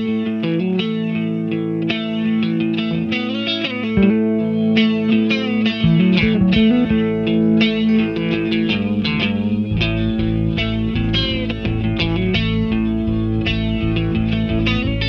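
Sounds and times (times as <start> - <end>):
guitar soundtrack music: 0.0 - 15.0.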